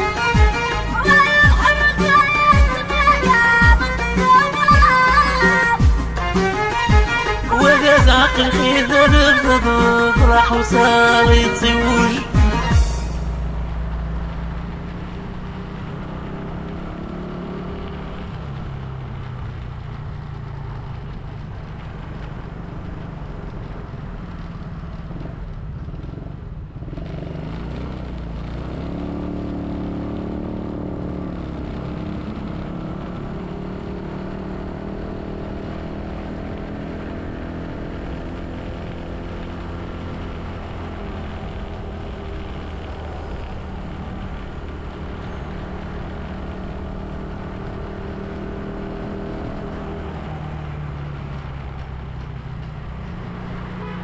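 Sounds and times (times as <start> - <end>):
road noise: 0.0 - 54.0
vehicle engine running: 0.0 - 54.0.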